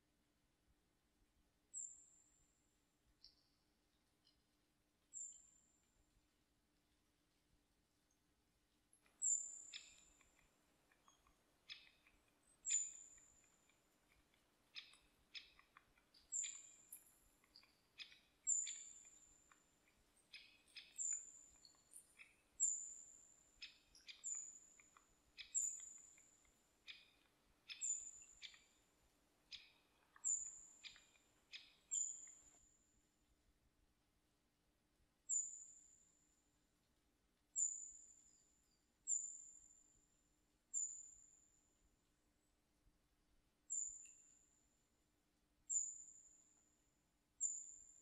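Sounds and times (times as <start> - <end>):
short sharp bird ticks: 9.0 - 22.4.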